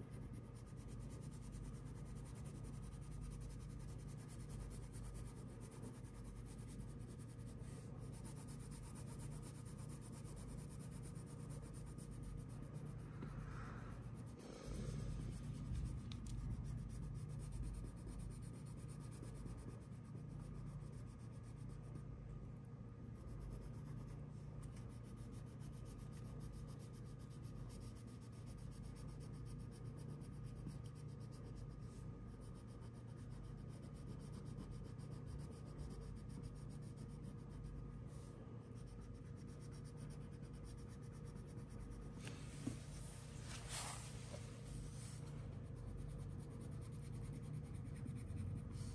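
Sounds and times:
faint steady hum: 0.0s - 48.9s
crayon scratching on paper: 0.2s - 13.0s, 14.9s - 22.0s, 23.2s - 42.3s, 43.1s - 48.9s.

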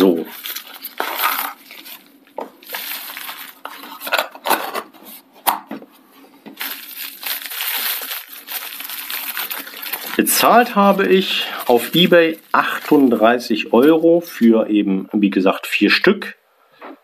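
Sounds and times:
bubble wrap crinkling: 0.0s - 5.2s, 6.5s - 14.4s.

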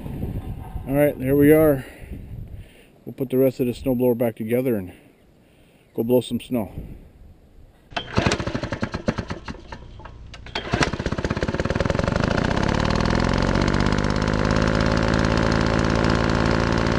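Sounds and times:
engine sputtering and starting: 7.9s - 16.9s.

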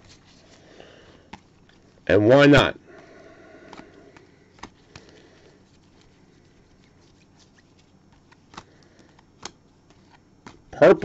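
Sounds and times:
trading cards shuffling: 0.0s - 2.0s, 3.6s - 11.0s
sharp card clicks: 8.1s - 10.7s.

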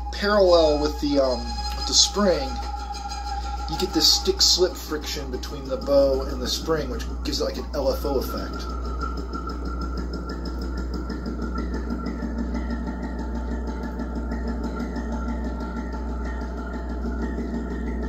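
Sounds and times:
electronic drone with pulsing warble: 0.0s - 18.0s.

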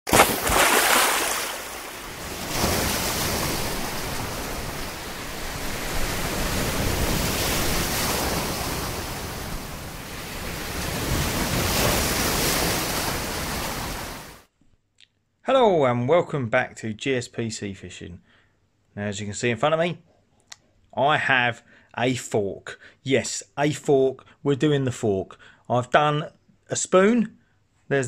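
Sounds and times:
waves breaking: 0.1s - 14.5s.

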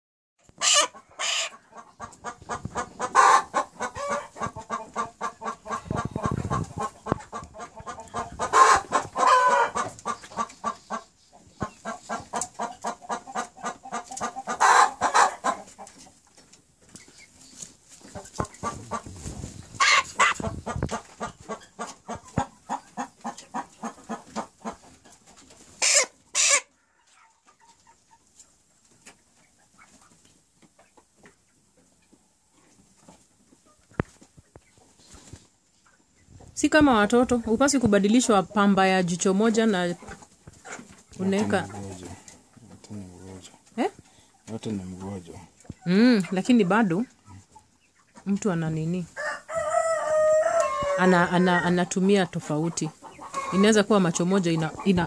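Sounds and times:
chickens clucking: 0.4s - 55.0s
chicken squawk: 0.6s - 15.7s, 19.8s - 24.8s, 25.8s - 27.4s, 49.2s - 51.7s, 53.0s - 53.8s.

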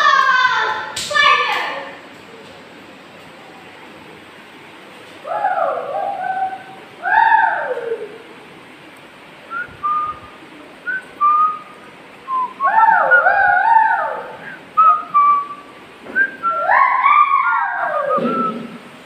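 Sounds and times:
person whistling: 9.5s - 10.3s, 18.1s - 18.7s.

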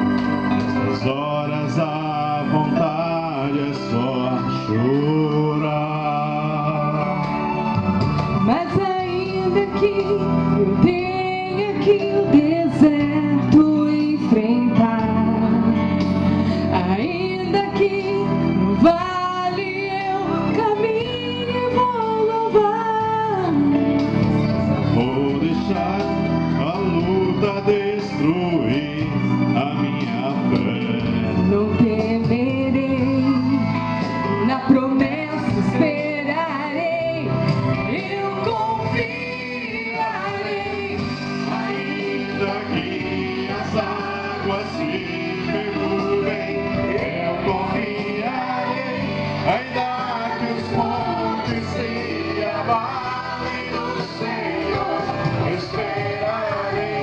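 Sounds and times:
choir singing a hymn: 37.9s - 57.0s.

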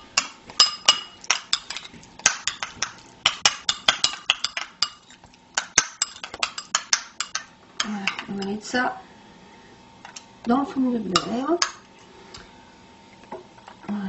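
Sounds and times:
spoon clinking against glass: 0.6s - 8.2s.

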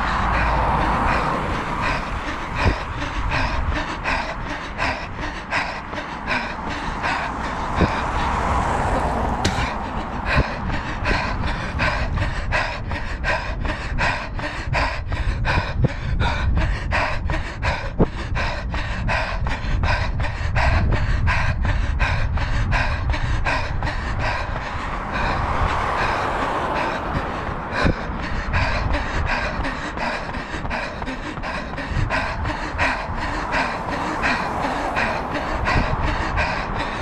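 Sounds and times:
heavy panting breath: 0.0s - 37.0s
rush of noise: 0.0s - 37.0s
wind rumbling on microphone: 0.0s - 37.0s.

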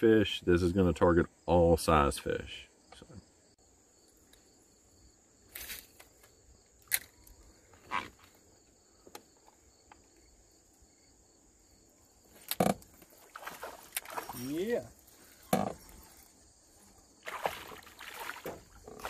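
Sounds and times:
high insect drone: 0.1s - 19.0s
fishing gear clicks and knocks: 12.3s - 13.1s.

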